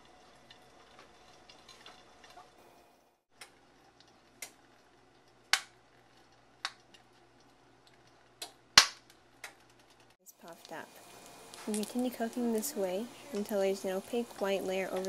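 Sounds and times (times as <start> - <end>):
egg frying with sharp pops: 0.0 - 2.6, 3.3 - 15.0.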